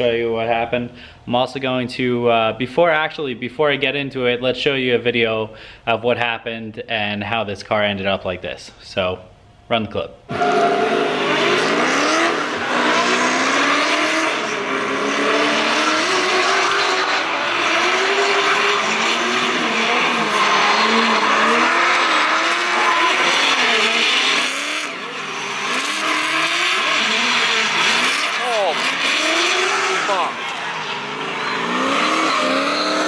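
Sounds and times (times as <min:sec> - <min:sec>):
car engines revving high: 0:10.3 - 0:33.0
tyres squealing: 0:15.6 - 0:33.0.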